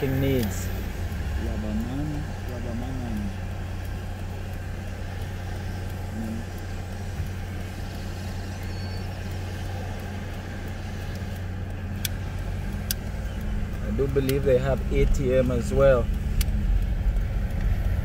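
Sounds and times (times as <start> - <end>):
car engine hum and road noise: 0.0 - 18.0.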